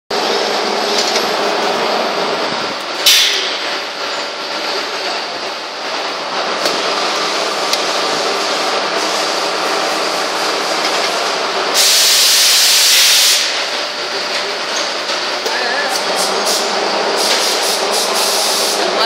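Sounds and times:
machine-shop noise: 0.1 - 19.0
compressed air hiss: 11.7 - 13.6, 16.1 - 19.0.

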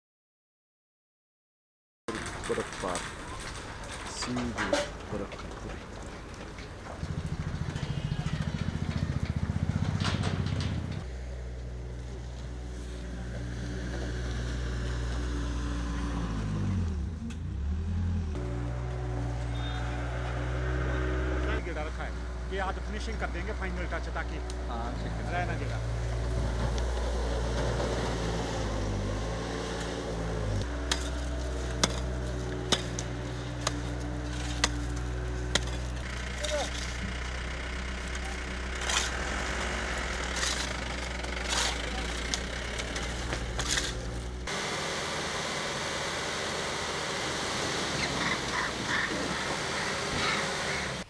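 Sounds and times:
car engine running: 6.7 - 14.4, 18.3 - 51.0
digging tool striking icy ground: 30.8 - 37.0.

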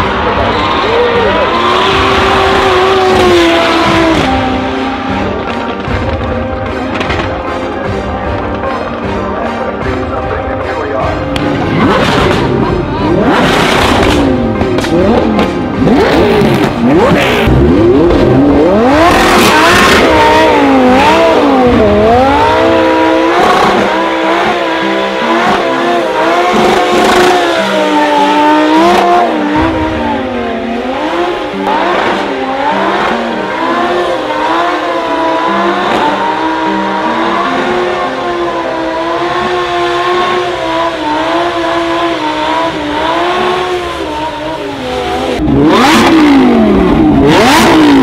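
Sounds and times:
car engine revving: 0.0 - 48.0.

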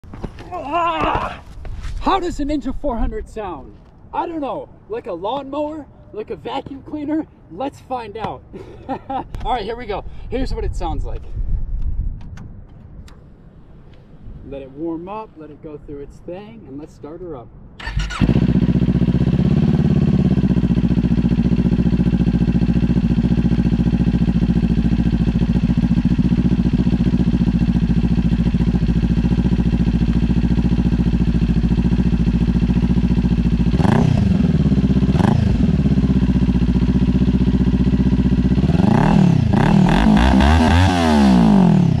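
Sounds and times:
motorcycle engine revving: 17.8 - 42.0
motorcycle engine idling: 17.9 - 39.6.

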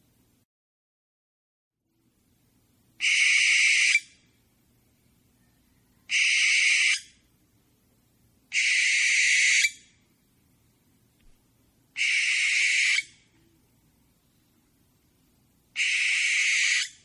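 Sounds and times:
owl screeching: 3.0 - 4.2, 6.0 - 7.2, 8.5 - 9.9, 12.0 - 13.2, 15.8 - 17.0.

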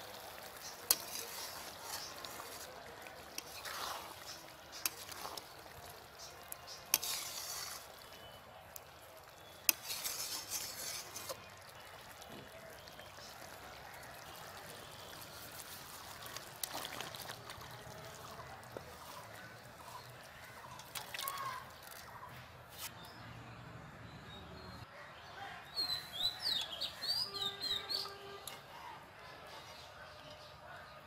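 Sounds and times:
curry simmering and stirred: 0.0 - 23.0
curry scraped and poured into bowl: 0.2 - 8.3, 9.3 - 11.7.

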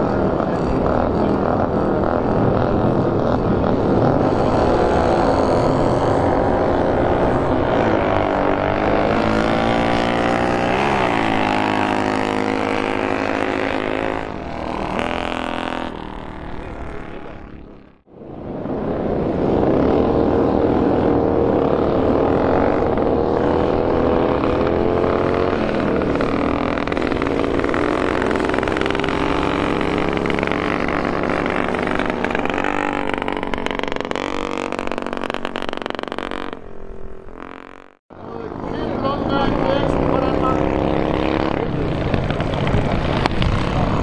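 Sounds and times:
motorcycle engine revving high: 0.0 - 44.0.

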